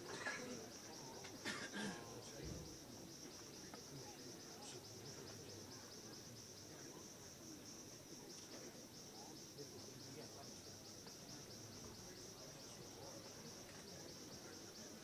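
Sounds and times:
faint low murmur: 0.0s - 15.0s
insect chirping trill: 0.1s - 15.0s.

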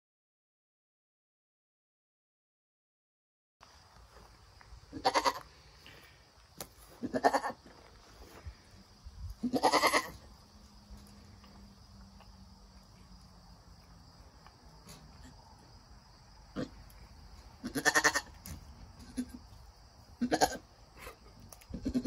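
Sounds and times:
goat bleating: 4.9s - 5.5s, 7.0s - 7.6s, 9.4s - 10.2s, 16.5s - 16.8s, 17.6s - 18.4s, 19.0s - 19.5s, 20.2s - 22.0s.

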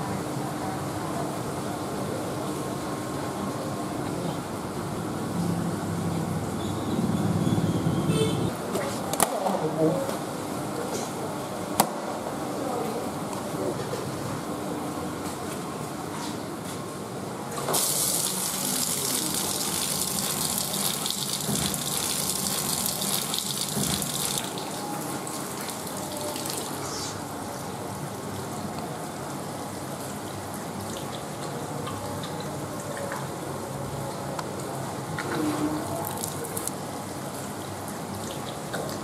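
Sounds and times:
tap water splashing on tiles: 17.6s - 24.7s
hissing water gush: 17.6s - 27.3s.

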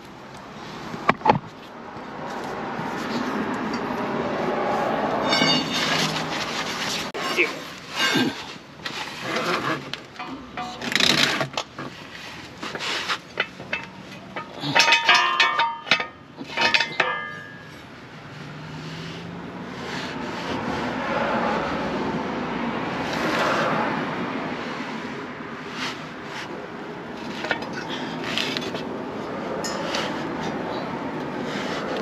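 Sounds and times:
metal tools clanking: 5.2s - 11.8s, 12.7s - 17.9s, 27.2s - 28.9s, 29.6s - 30.9s.

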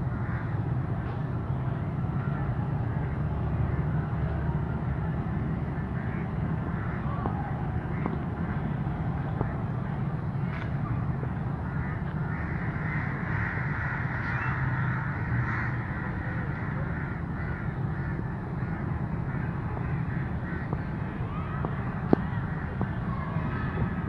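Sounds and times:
crows cawing: 0.0s - 0.6s, 11.6s - 22.8s
diesel locomotive rumble: 0.0s - 24.0s.

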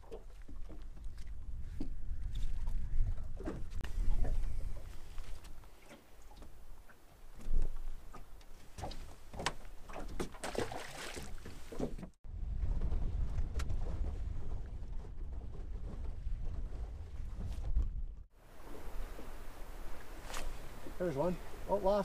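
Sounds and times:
boat engine rumble: 11.3s - 22.0s.

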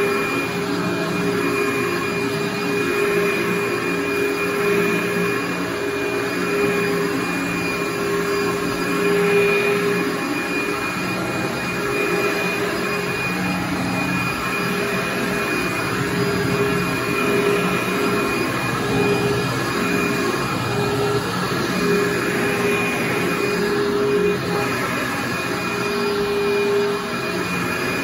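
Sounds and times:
vacuum cleaner running: 0.0s - 28.0s.

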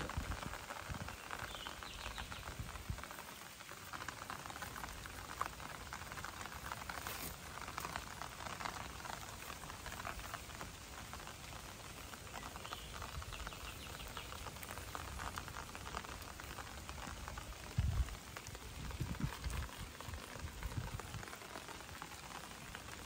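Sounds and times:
light rain pattering: 0.0s - 23.0s.

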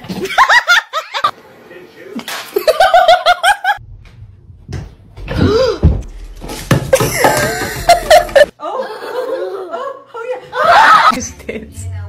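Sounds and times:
plastic bottle clattering on wooden floor: 6.4s - 8.4s.

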